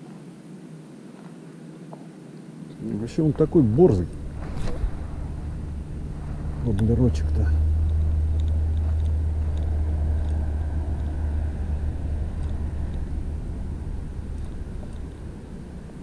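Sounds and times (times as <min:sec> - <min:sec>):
vehicle engine rumble: 0:02.7 - 0:16.0.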